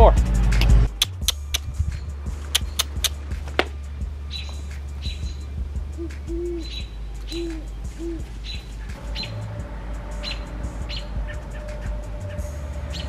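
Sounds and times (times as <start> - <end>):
steady low hum: 0.0 - 13.0
small birds chirping: 0.9 - 13.0
steady tone: 1.7 - 13.0
owl hooting: 4.3 - 13.0.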